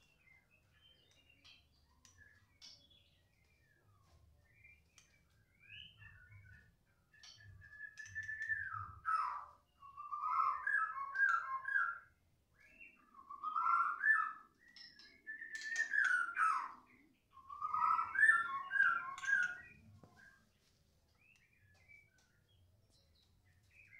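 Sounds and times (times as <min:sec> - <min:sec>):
bird song whistled phrases: 0:05.6 - 0:19.9.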